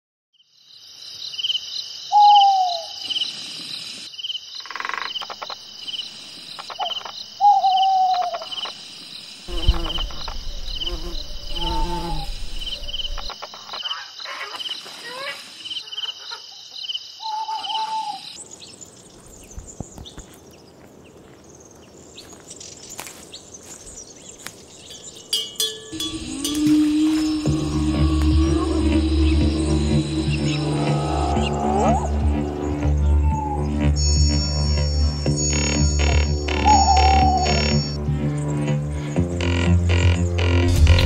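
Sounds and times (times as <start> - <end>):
crickets chirping: 0.4 - 41.0
faint outdoor ambience: 0.5 - 40.6
low rough animal call: 9.5 - 13.3, 26.0 - 33.8.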